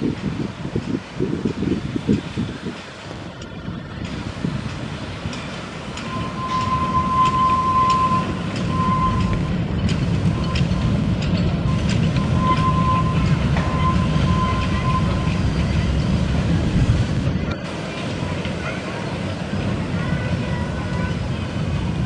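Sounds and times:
steam train rumbling past: 0:00.0 - 0:22.0
wheels clicking: 0:00.0 - 0:22.0
thin high squeal: 0:06.0 - 0:09.4, 0:11.7 - 0:15.4.

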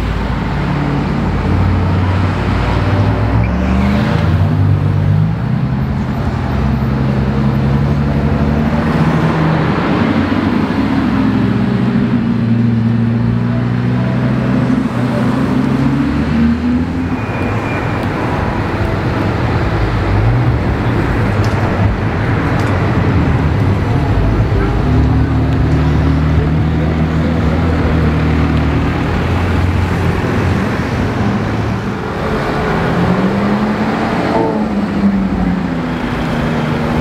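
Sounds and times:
car engines driving by: 0:00.0 - 0:37.0
traffic noise: 0:00.0 - 0:37.0
engine revving: 0:19.4 - 0:37.0.

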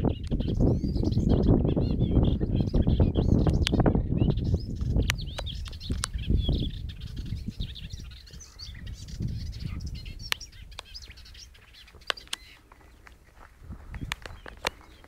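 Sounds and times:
songbirds chirping: 0:00.0 - 0:15.0.

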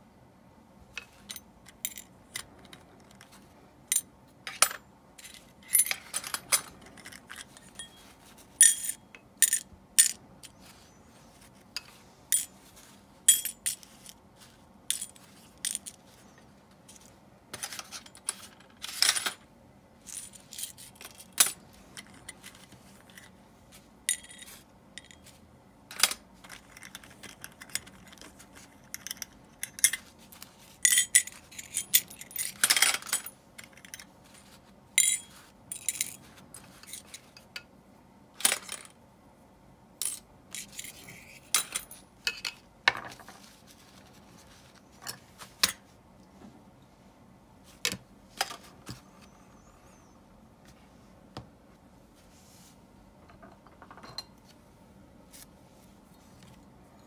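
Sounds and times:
small metal parts clicking and clinking: 0:01.0 - 0:10.6, 0:11.8 - 0:12.6, 0:13.3 - 0:14.2, 0:14.9 - 0:16.3, 0:20.0 - 0:23.4, 0:24.1 - 0:37.7, 0:40.0 - 0:43.3.

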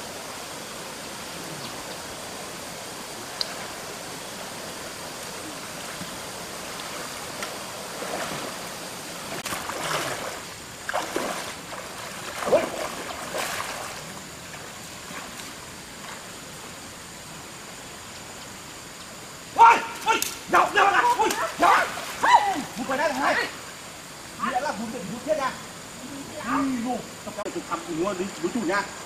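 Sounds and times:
shallow stream rushing: 0:00.0 - 0:29.0
splashes of wading in water: 0:05.4 - 0:16.5, 0:20.8 - 0:23.7.

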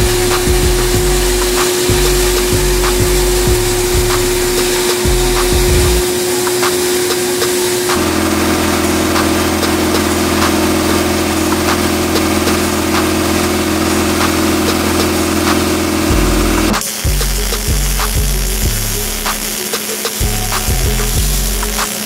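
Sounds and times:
low hum: 0:00.0 - 0:06.0, 0:15.8 - 0:19.6
sandblasting hiss of air and grit: 0:00.0 - 0:22.0.

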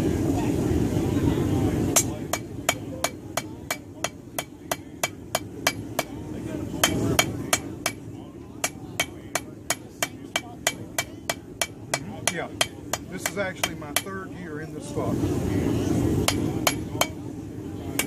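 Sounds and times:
hammer striking metal on anvil: 0:02.0 - 0:06.2, 0:06.8 - 0:08.0, 0:08.6 - 0:14.2, 0:16.2 - 0:17.2.

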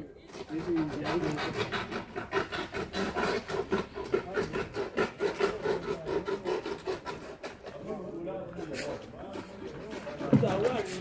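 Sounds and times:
fast scraping strokes: 0:00.2 - 0:11.0.

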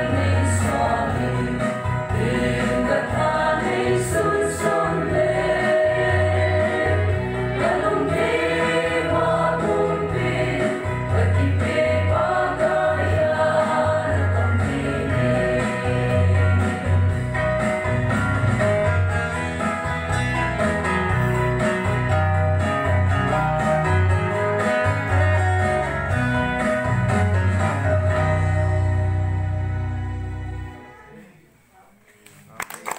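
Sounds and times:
women singing in chorus: 0:02.2 - 0:16.0.

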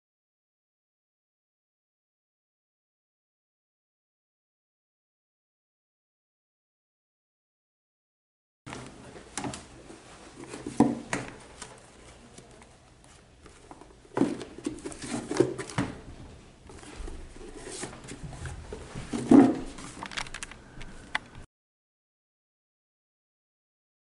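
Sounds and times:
papers rustling: 0:08.7 - 0:21.4.

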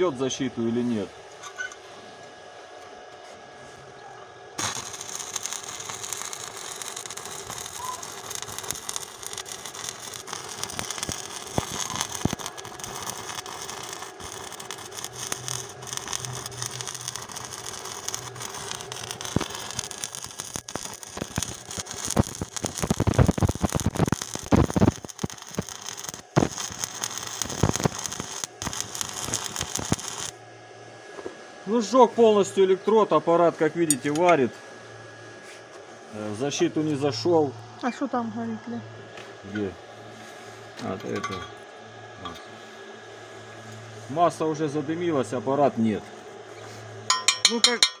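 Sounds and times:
welding arc crackling hiss: 0:04.6 - 0:30.4.

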